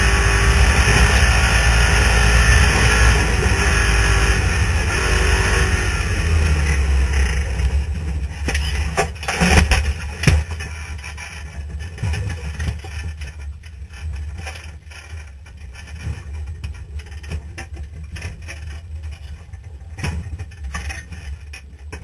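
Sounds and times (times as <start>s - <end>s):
engine running with low rumble: 0.0s - 22.0s
knocks and rattles: 6.2s - 22.0s.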